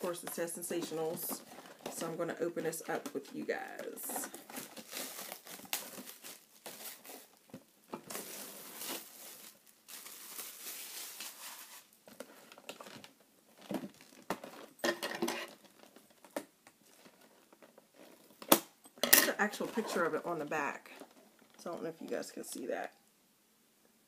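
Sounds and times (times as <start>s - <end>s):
plastic wrapping crinkling: 0.0s - 18.5s.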